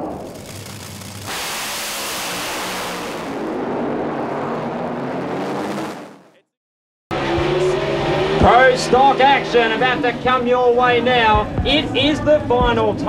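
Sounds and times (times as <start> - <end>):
drag racing engine: 0.0 - 6.4, 7.1 - 11.4
rushing hiss: 0.3 - 3.3.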